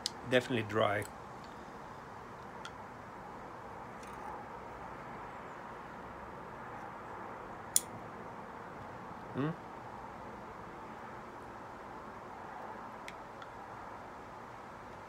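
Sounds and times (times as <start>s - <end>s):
low background hiss: 0.0s - 4.3s.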